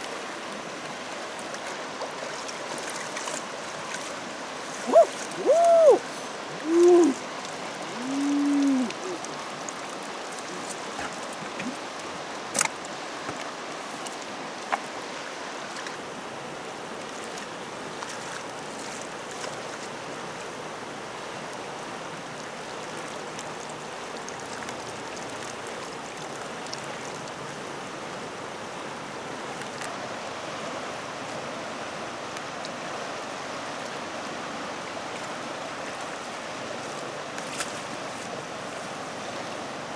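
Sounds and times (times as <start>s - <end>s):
river rushing: 0.0s - 39.9s
short pitched calls: 4.9s - 6.0s.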